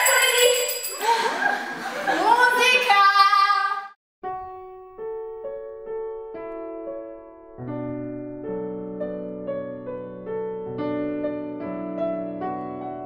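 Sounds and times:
slow piano music: 4.2s - 13.0s.

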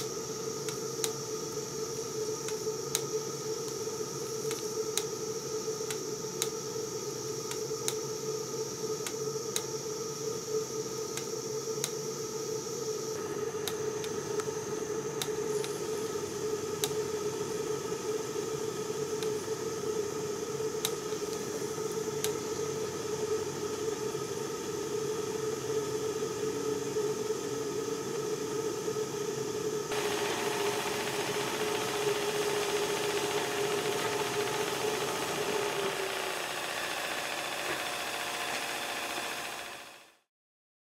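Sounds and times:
steady hum: 0.0s - 40.2s
steam hissing: 27.0s - 40.0s.

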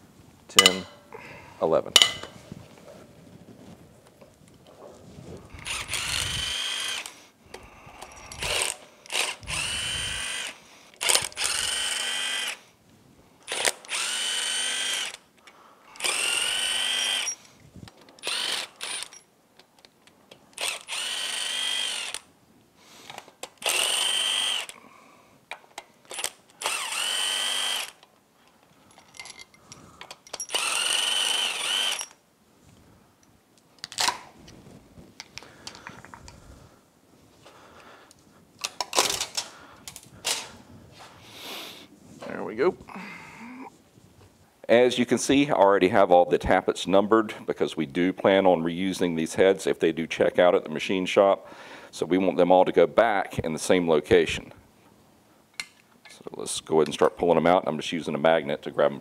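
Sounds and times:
power driver whining: 5.5s - 12.6s, 13.5s - 15.2s, 16.0s - 17.4s, 18.1s - 19.2s, 20.5s - 22.2s, 23.6s - 24.8s, 26.0s - 28.0s, 30.0s - 32.2s.

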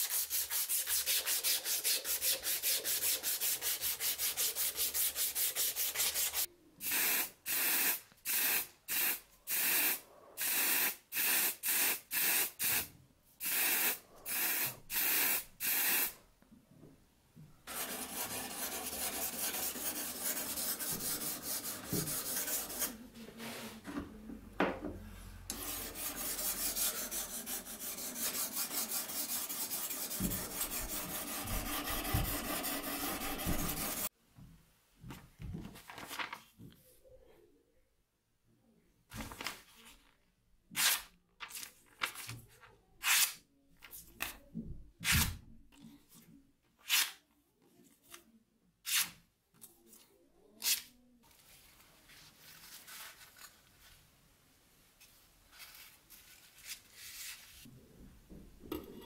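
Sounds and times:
abrasive cloth sanding wood: 0.0s - 6.5s, 17.7s - 23.0s, 25.5s - 34.1s.

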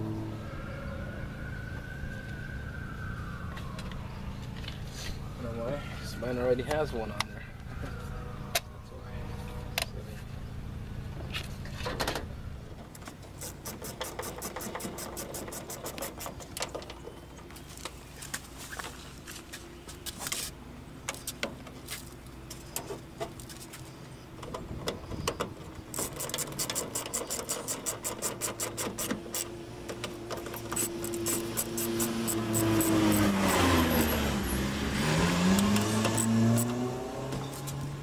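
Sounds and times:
engine-like hum: 0.0s - 38.0s
hand ratchet clicking: 25.9s - 29.5s.

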